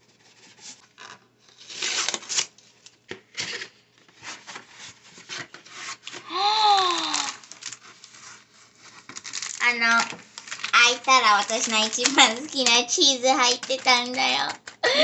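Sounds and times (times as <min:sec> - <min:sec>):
cardboard flap scraping: 0:00.2 - 0:06.3
drawn-out voice sound: 0:06.3 - 0:07.4.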